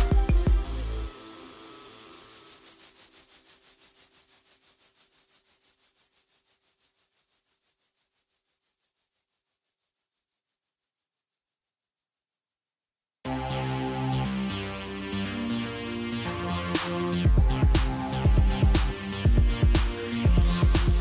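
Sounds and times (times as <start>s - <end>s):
electronic music held note: 13.3s - 21.0s.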